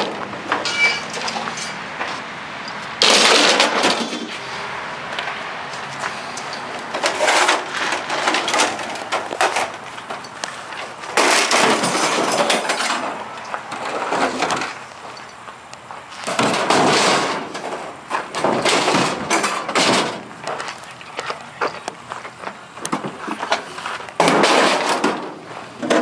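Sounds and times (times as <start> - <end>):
scrap metal clattering: 0.0 - 1.8, 3.0 - 4.5, 6.4 - 14.8, 16.3 - 20.3, 23.0 - 26.0.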